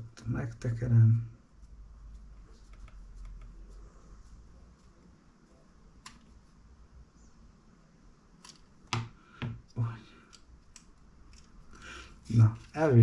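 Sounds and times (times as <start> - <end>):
plastic parts ticking and scraping: 10.3 - 11.8.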